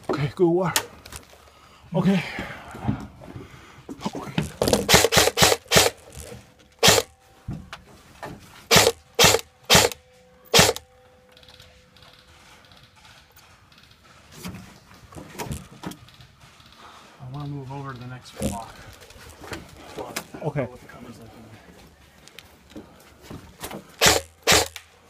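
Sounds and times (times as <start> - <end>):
airsoft rifle shots: 4.7 - 6.2, 6.8 - 7.1, 8.7 - 10.9, 24.0 - 24.9.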